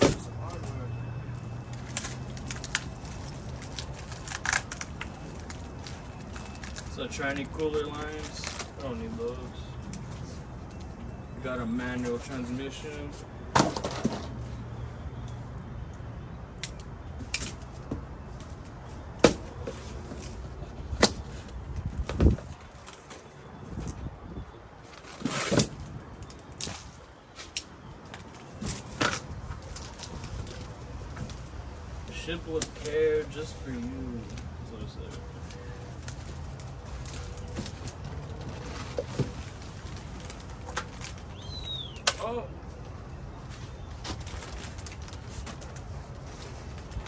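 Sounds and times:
plastic wrap crinkling: 1.8 - 8.9.

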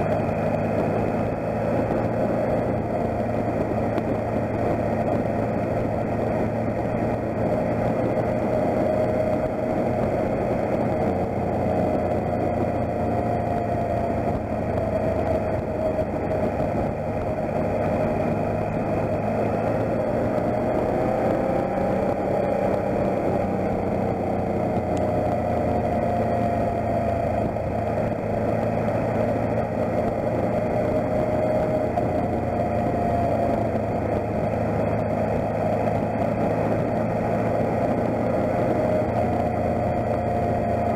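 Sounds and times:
motorcycle engine running: 0.0 - 40.9
wind and road noise: 0.0 - 40.9.

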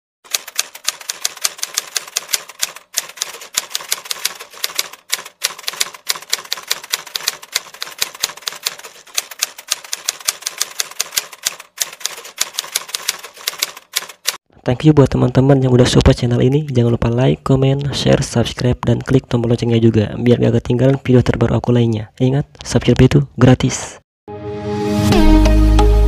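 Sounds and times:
typewriter key strikes: 0.3 - 14.4.

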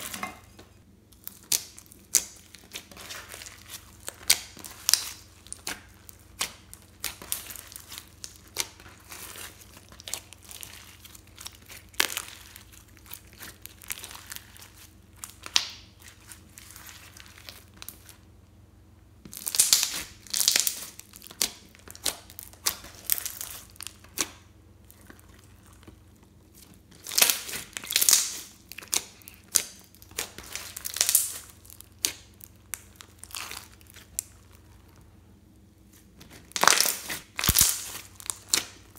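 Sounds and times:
slime squeezed with sticky pops: 36.2 - 38.9.

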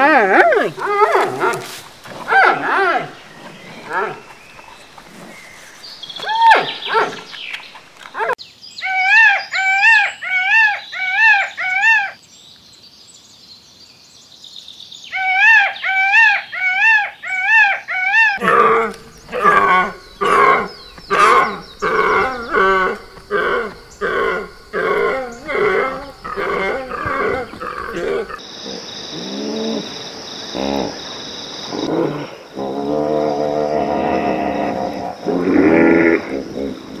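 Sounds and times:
animal's low rhythmic calls: 0.0 - 8.4, 18.4 - 31.0
peacock calling: 0.0 - 12.2, 15.2 - 28.4.

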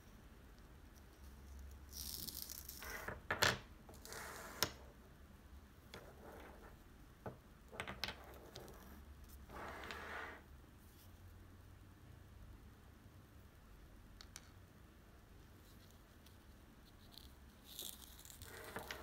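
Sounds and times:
rustling of handling beads: 0.9 - 3.3, 15.5 - 19.0.

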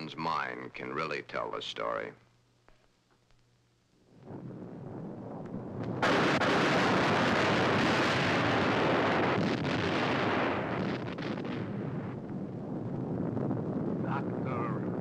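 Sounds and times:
thunder crash and rumble: 4.3 - 15.0.

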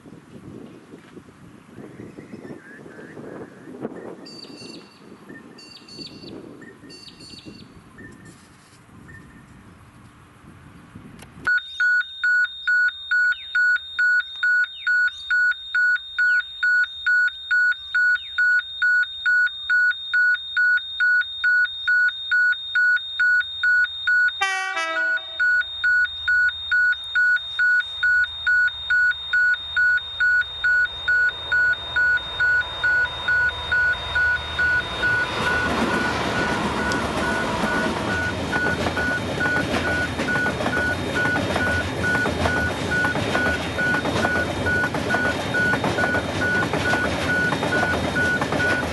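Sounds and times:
level crossing warning bell: 11.5 - 48.9
freight train passing: 24.4 - 25.5, 30.5 - 48.9.

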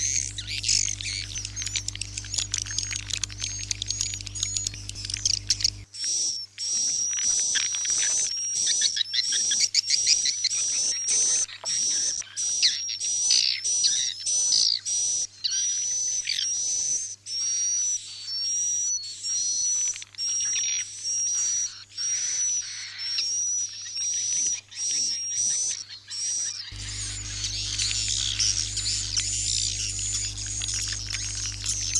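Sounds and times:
low hum: 0.0 - 5.9, 26.7 - 31.9
twittering bird chirps: 0.0 - 31.9.

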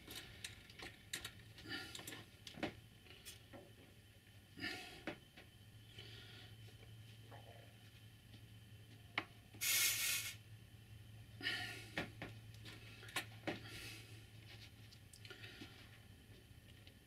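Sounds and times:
solder hissing: 9.6 - 10.4.

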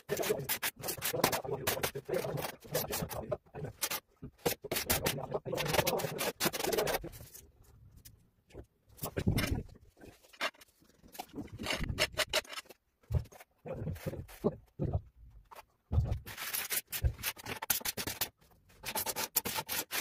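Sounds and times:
trowel scraping: 0.0 - 7.4, 15.5 - 20.0.

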